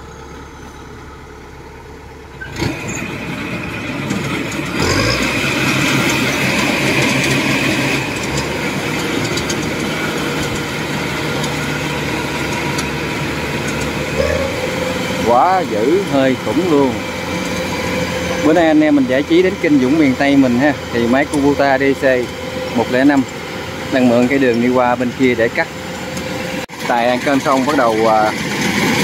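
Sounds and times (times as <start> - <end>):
diesel engine running under load: 0.0 - 29.0.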